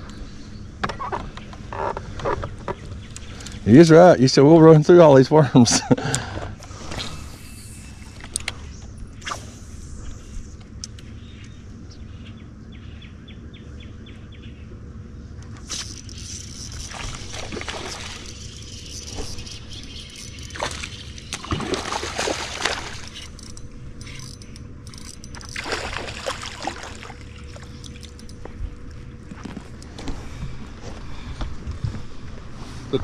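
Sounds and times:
steady low hum: 0.0 - 33.0
water sloshing and splashing: 15.7 - 24.2, 25.0 - 29.1.

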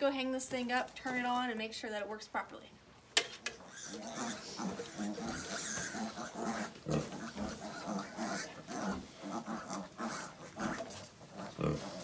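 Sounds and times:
pig grunting: 3.6 - 12.0.

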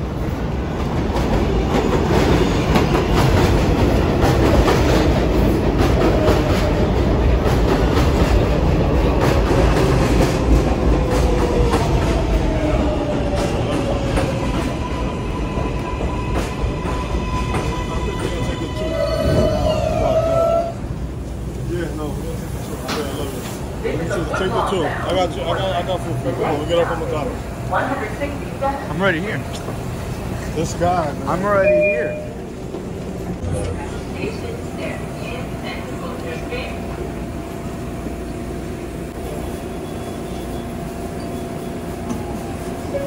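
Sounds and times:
train wheels clattering on rails: 0.2 - 18.6
steady high tone: 31.4 - 32.5.

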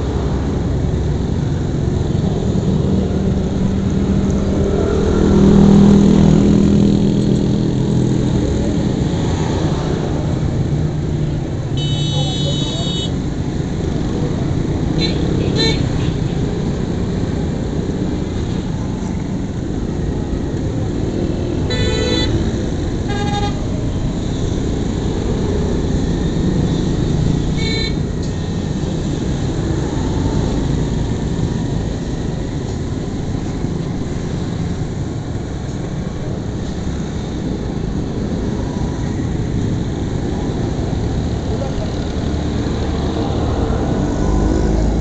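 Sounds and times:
motorcycle engine and road rumble: 0.0 - 45.0
vehicle horns beeping: 11.8 - 13.2, 15.0 - 16.4, 21.7 - 23.7, 27.4 - 28.1.

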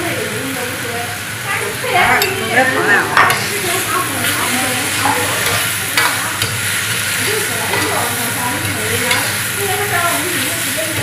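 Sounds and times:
food sizzling in a wok: 0.0 - 11.0
metal ladle scraping wok: 2.0 - 11.0.

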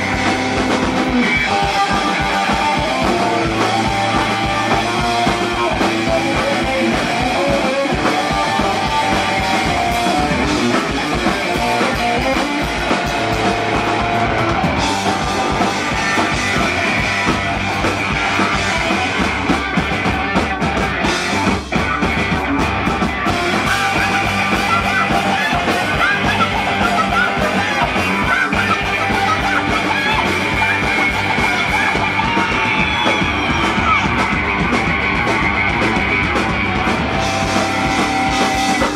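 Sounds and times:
electric guitar: 0.0 - 38.9
punk rock band playing live: 0.0 - 38.9.

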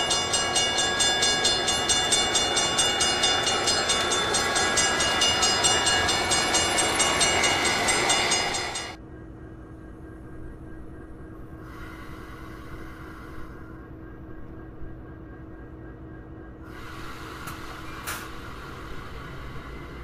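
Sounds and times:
railway crossing bell ringing: 0.0 - 9.0
faint hum: 0.0 - 20.0
train rumbling past: 0.0 - 20.0.

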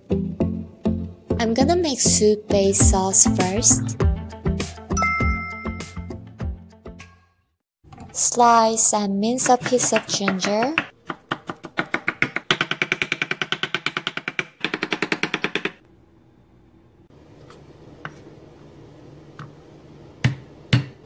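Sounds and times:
knife chopping on wooden board: 9.4 - 15.8, 20.2 - 21.0.

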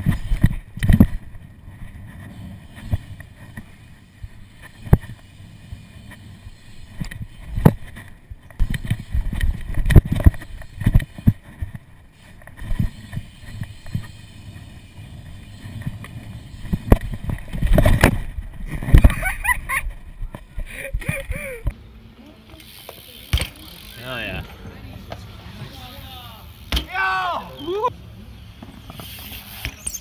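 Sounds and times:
bike tyres rolling on concrete: 0.0 - 30.0
bike knocks and clunks: 15.2 - 19.2, 22.5 - 23.7, 26.6 - 27.0.

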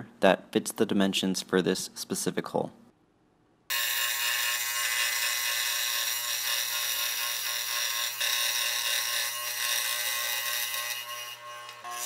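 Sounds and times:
scroll saw cutting plywood: 3.7 - 12.0.

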